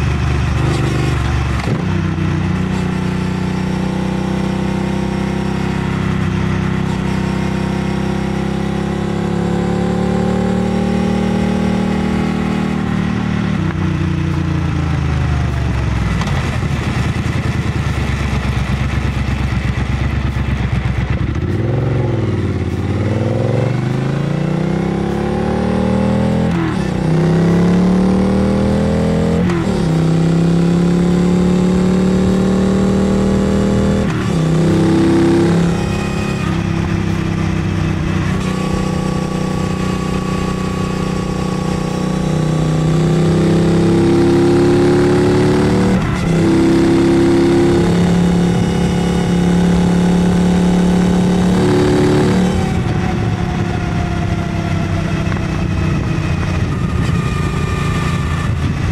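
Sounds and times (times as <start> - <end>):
motorcycle engine and exhaust: 0.0 - 58.9
wind rush on microphone: 52.4 - 58.9.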